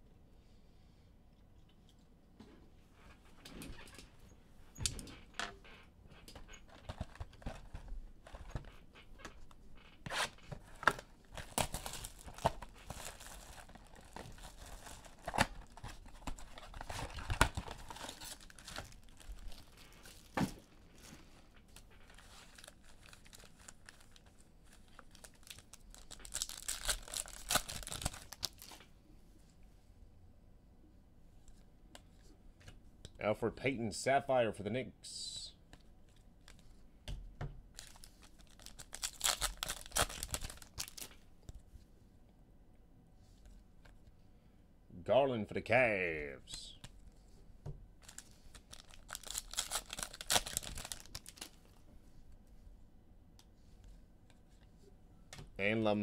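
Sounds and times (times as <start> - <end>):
wrappers tearing and crinkling: 10.1 - 28.8, 37.8 - 41.2, 48.0 - 51.7.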